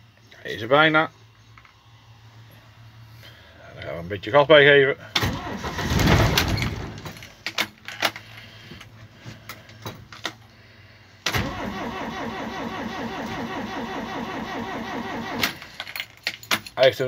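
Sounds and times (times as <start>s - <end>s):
starter cranking diesel engine: 5.2s - 6.0s, 11.3s - 15.8s.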